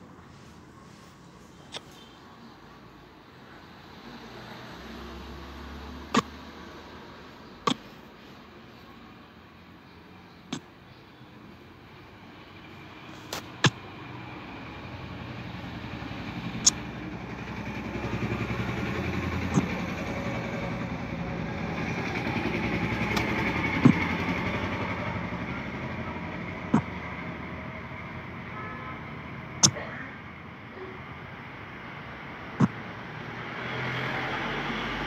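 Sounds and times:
vehicle engine and road noise: 0.0s - 35.0s
sharp clicks: 16.6s - 16.9s.

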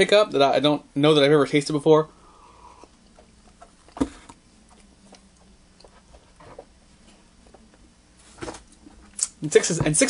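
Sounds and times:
person sipping drink: 2.1s - 6.0s
mouth clicks and lip smacks: 9.2s - 9.4s.

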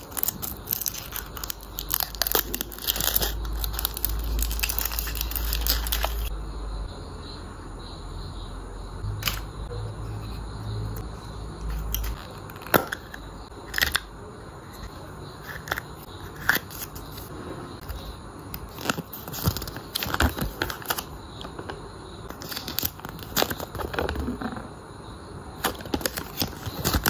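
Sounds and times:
paper crinkling and rustling: 0.0s - 6.3s, 18.6s - 21.1s, 22.3s - 24.2s, 25.6s - 27.0s.

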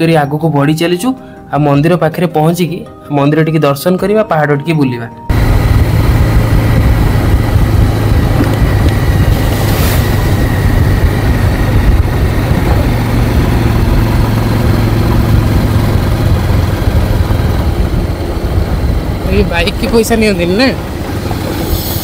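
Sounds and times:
motorcycle engine hum: 5.3s - 22.0s
road and air noise: 5.3s - 22.0s.

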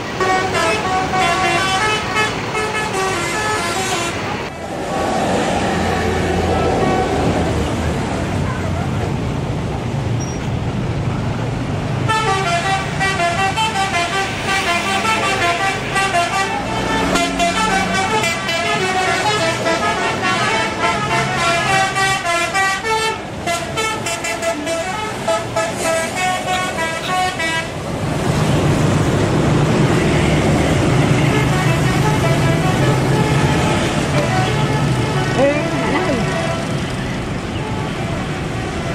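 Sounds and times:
multi-tone bus horn melody: 0.0s - 4.5s, 12.0s - 27.8s, 30.0s - 38.9s.

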